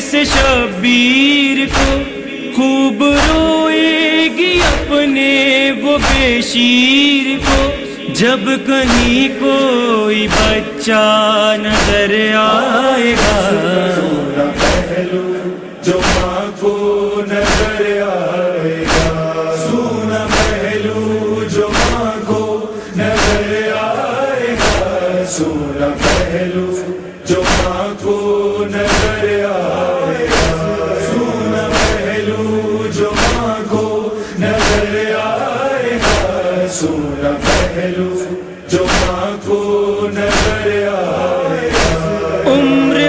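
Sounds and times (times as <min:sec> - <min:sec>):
male voices chanting: 0:00.0 - 0:43.0
chest-beating slaps: 0:01.7 - 0:02.1, 0:06.0 - 0:06.3, 0:13.2 - 0:13.5, 0:14.5 - 0:15.0, 0:16.0 - 0:16.4, 0:17.4 - 0:17.8, 0:18.8 - 0:19.2, 0:20.3 - 0:20.6, 0:21.7 - 0:22.0, 0:27.4 - 0:27.8, 0:28.9 - 0:29.2, 0:30.3 - 0:30.6, 0:38.9 - 0:39.2.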